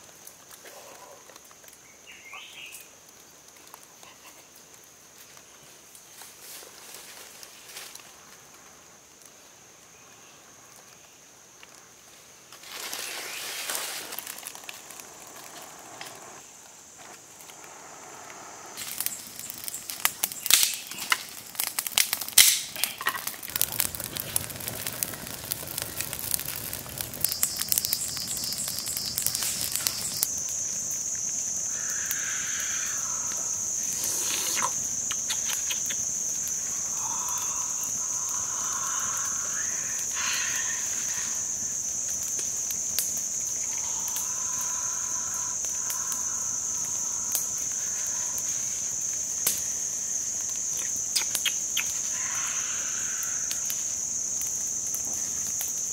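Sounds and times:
fire crackling and popping: 0.0s - 55.9s
high-pitched insect drone: 27.2s - 54.5s.

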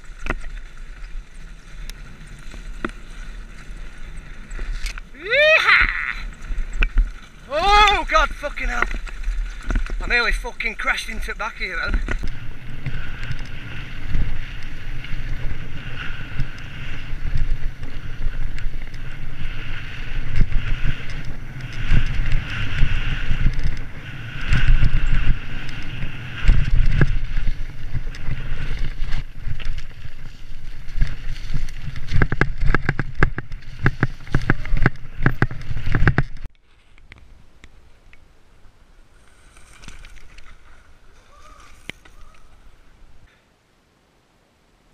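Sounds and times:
bike rattling and clattering: 0.0s - 36.9s
tyres rolling over dirt: 0.0s - 37.9s
quiet woodland background: 0.0s - 44.9s
wind rushing over microphone: 6.8s - 36.5s.

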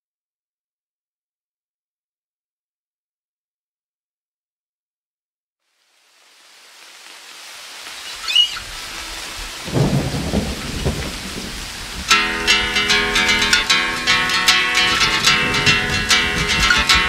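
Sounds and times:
rain hiss: 5.6s - 17.0s
low thunder rumbles: 8.6s - 13.6s, 14.9s - 17.0s
plucked guitar: 12.0s - 17.0s.

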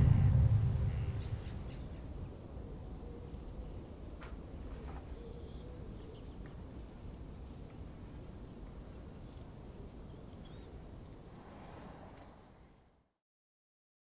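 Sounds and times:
low steady rumble: 0.0s - 2.1s.

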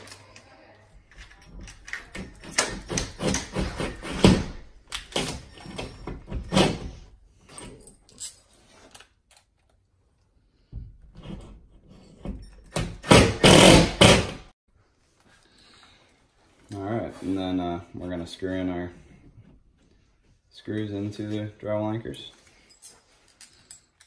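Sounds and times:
cordless drill into drywall: 12.8s - 14.4s.

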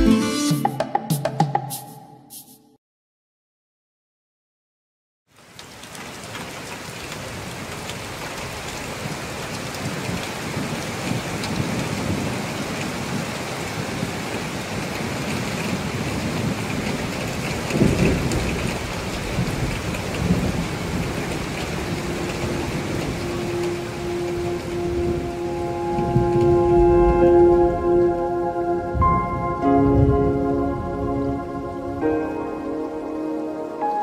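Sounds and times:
steady rain falling: 5.3s - 34.0s
thunder rumbling: 9.8s - 32.1s.

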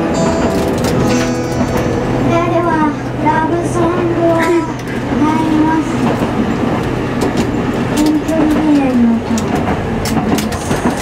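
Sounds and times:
acoustic guitar: 0.0s - 5.7s
streetcar moving: 0.0s - 11.0s.

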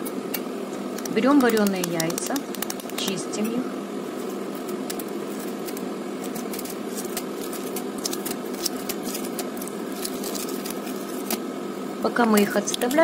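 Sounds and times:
steady background hum: 0.0s - 13.0s
eggshell clicks and crackles: 0.9s - 3.2s, 4.6s - 11.4s.

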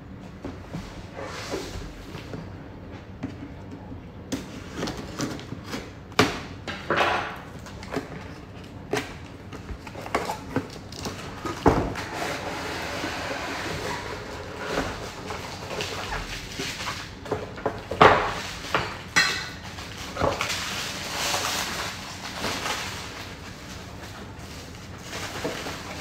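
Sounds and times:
plastic wrapping rustling: 18.3s - 26.0s.

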